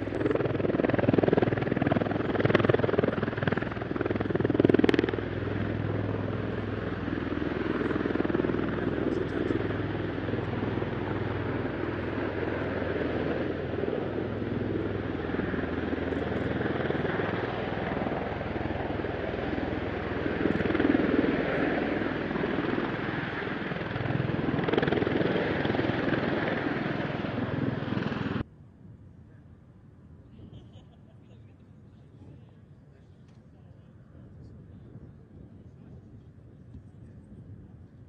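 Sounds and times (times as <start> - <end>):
loud throbbing aircraft rotors: 0.0 - 28.5.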